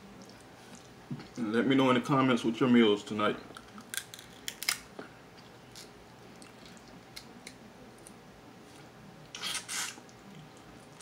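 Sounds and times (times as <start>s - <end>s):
crab shell cracking: 3.6s - 4.9s.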